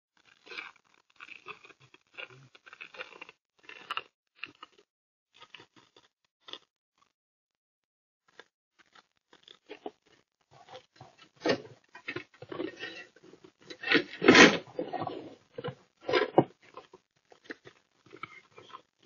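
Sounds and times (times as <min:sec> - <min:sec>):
knocks and scrapes: 0:10.6 - 0:17.0.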